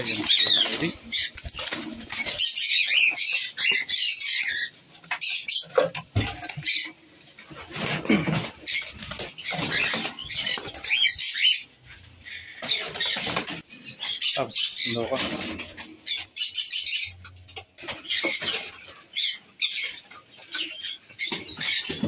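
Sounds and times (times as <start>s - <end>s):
wings fluttering: 0.0s - 5.4s, 6.1s - 11.5s, 12.6s - 13.8s
lovebirds chirping and squeaking: 0.0s - 22.0s.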